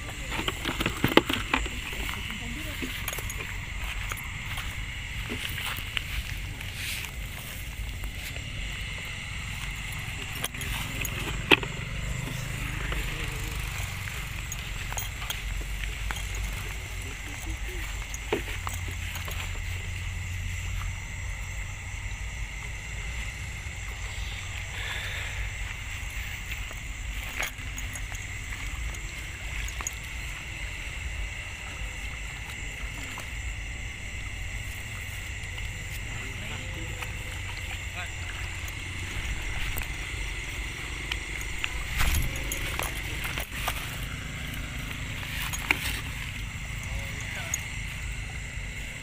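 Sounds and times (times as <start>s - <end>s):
night insects chorus: 0.0s - 49.0s
steady high hiss: 0.0s - 49.0s.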